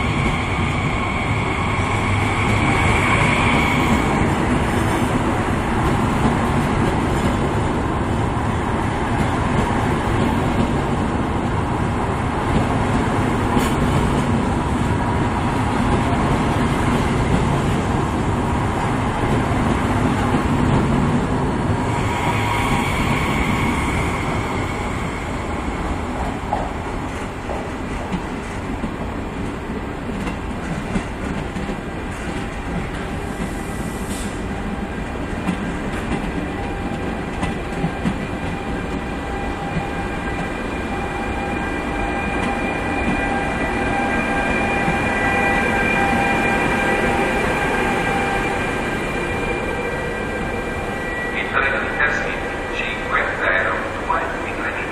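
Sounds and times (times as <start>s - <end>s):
high steady squeal: 0.0s - 4.4s, 21.8s - 26.2s
train wheels on rails: 0.0s - 54.9s.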